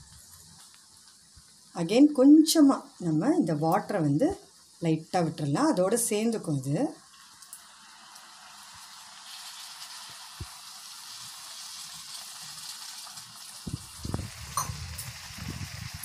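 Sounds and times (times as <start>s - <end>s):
hot oil sizzling: 0.0s - 16.0s
water poured into pan: 7.2s - 16.0s.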